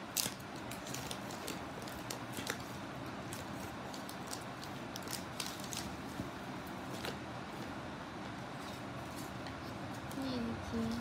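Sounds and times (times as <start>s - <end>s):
wrapper tearing and crinkling: 0.1s - 6.0s.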